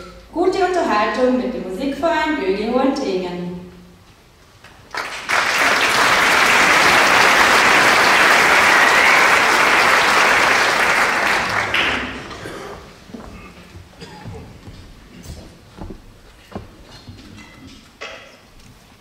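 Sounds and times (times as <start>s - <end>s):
audience applauding: 4.6s - 12.5s.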